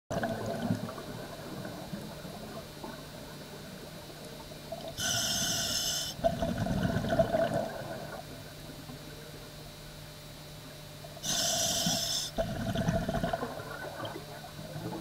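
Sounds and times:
exhaled bubbles gurgling: 0:00.1 - 0:09.1, 0:11.1 - 0:15.0
regulator inhalation hiss: 0:05.0 - 0:06.2, 0:11.2 - 0:12.4.

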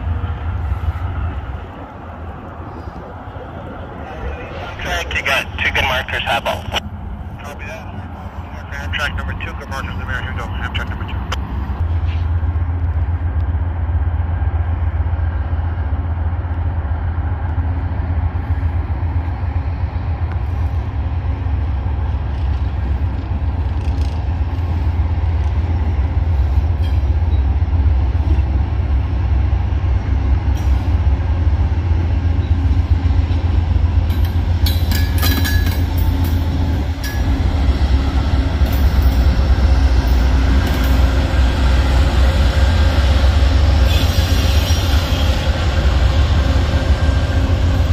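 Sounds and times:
diesel locomotive drone: 0:00.0 - 0:47.9
wheels clicking and squeaking on rail: 0:26.5 - 0:27.6, 0:34.1 - 0:37.5, 0:43.8 - 0:45.3.

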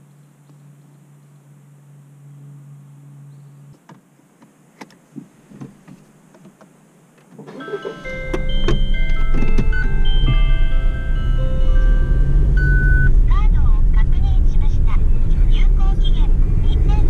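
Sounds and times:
steady low hum: 0:00.0 - 0:17.0
music with mallet percussion: 0:07.6 - 0:13.1.

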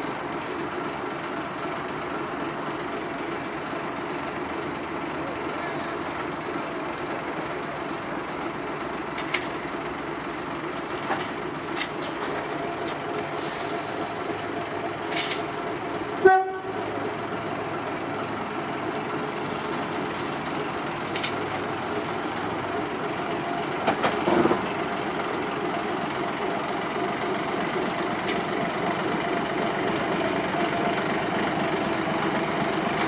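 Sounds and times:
diesel locomotive engine hum: 0:00.0 - 0:33.0
locomotive horn toot: 0:16.2 - 0:16.8.

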